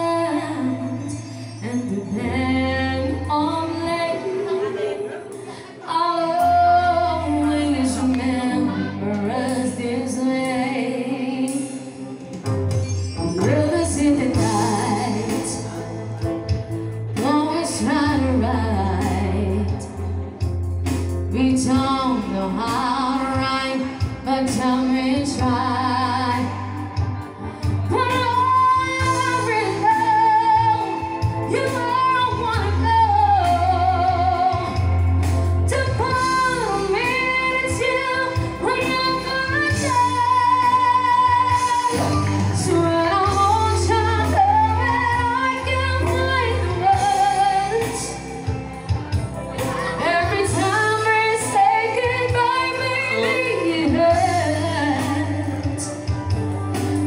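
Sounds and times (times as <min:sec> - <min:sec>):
woman singing with vibrato: 0:00.0 - 0:12.3, 0:13.2 - 0:15.8, 0:17.2 - 0:20.3, 0:21.3 - 0:48.4, 0:49.6 - 0:56.1
electric guitars: 0:00.0 - 0:57.0
steady bass line: 0:12.4 - 0:57.0.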